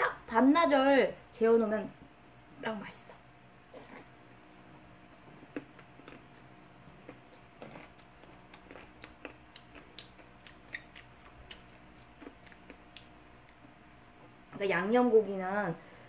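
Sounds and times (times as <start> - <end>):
chewing with wet mouth clicks: 5.1 - 13.8.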